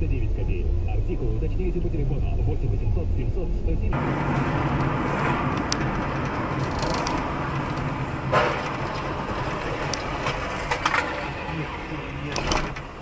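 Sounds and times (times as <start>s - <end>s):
car engine hum: 0.0s - 13.0s
road noise: 0.0s - 13.0s
car crash: 4.0s - 13.0s.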